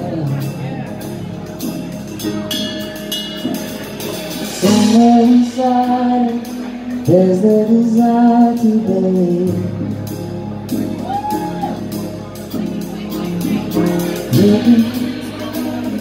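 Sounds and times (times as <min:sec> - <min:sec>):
live band playing: 0:00.0 - 0:16.0
man singing long notes: 0:04.6 - 0:10.1, 0:14.1 - 0:16.0.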